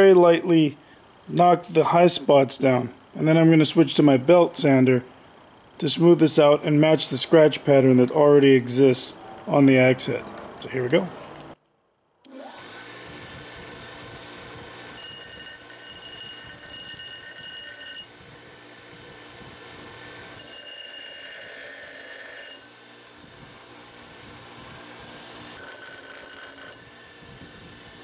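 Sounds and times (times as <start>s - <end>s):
bench grinder motor running: 12.3s - 18.2s, 19.7s - 22.8s
metal grinding high whine: 13.9s - 18.3s, 19.7s - 22.8s, 25.5s - 27.4s.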